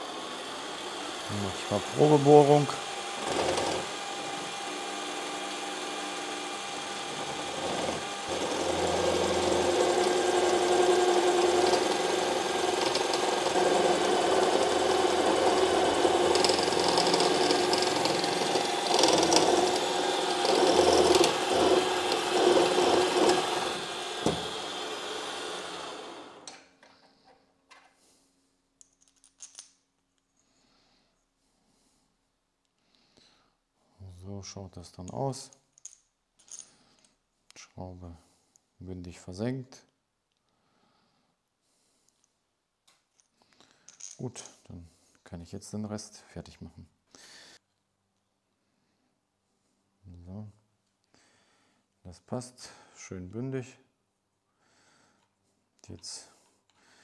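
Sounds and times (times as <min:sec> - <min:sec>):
drill press drilling metal: 0:00.0 - 0:26.6.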